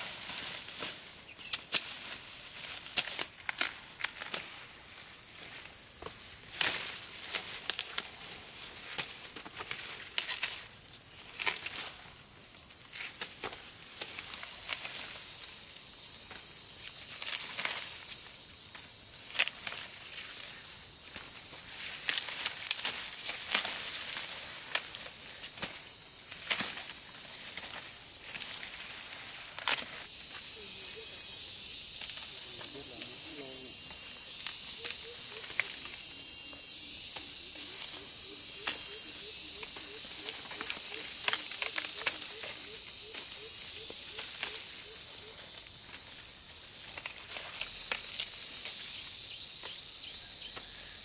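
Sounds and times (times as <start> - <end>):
insects chirping in a trill: 0.0 - 51.0
sharp cracks and snaps: 46.8 - 48.8.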